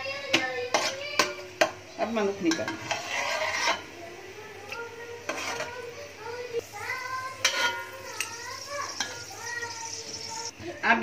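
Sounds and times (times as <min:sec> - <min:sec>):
spoon stirring in frying oil: 0:00.2 - 0:10.6
faint high voice: 0:04.0 - 0:10.9
spoon clinking on pot: 0:07.4 - 0:09.3.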